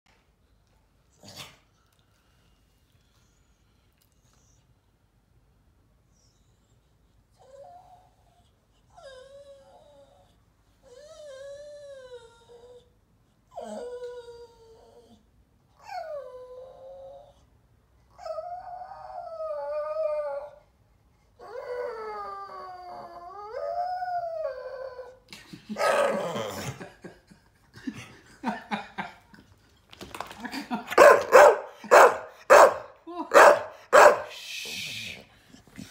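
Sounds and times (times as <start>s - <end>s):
dog howling whines: 18.2s - 20.6s, 21.4s - 25.2s.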